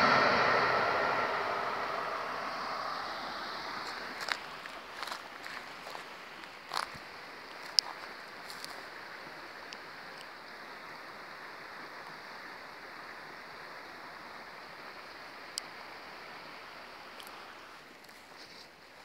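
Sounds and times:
creek water flowing: 0:00.0 - 0:19.0.

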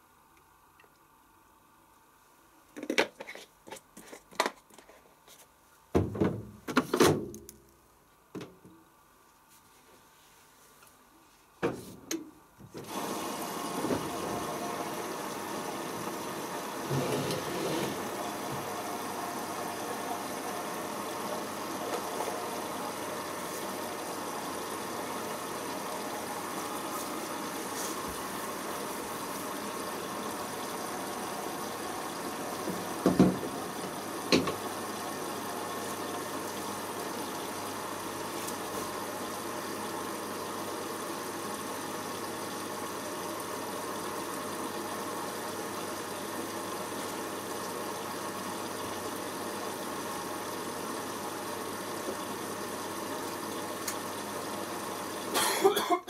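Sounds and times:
water running into washing machine: 0:12.8 - 0:55.9.

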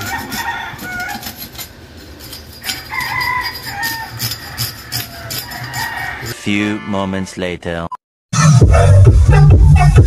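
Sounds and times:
metal scaler scraping fish scales: 0:00.0 - 0:06.4.

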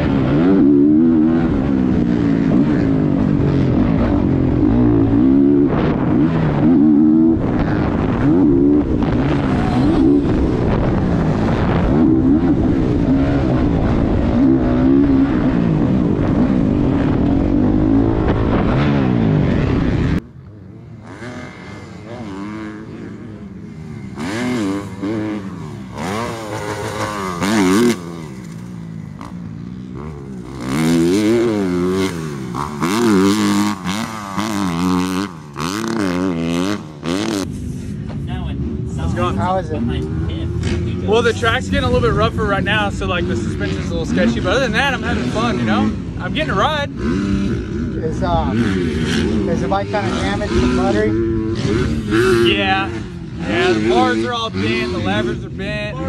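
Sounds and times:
wind noise on microphone: 0:00.0 - 0:20.2
dirt bike engine revving: 0:00.0 - 0:56.0.

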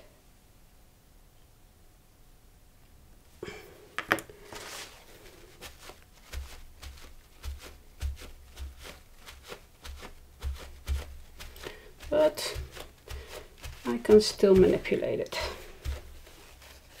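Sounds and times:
paper towel crinkling: 0:04.4 - 0:17.0
paper towel dabbing and rubbing: 0:04.4 - 0:17.0.

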